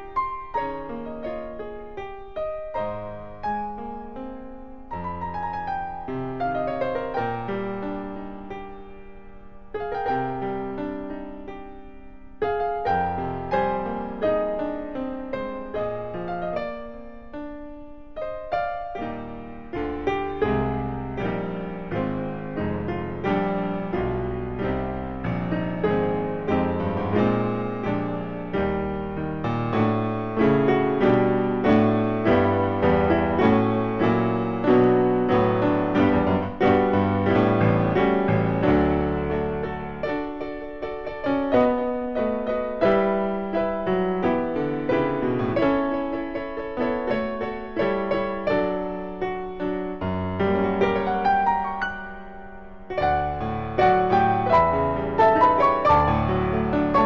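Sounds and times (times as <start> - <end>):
piano chords ringing: 0.0 - 57.0.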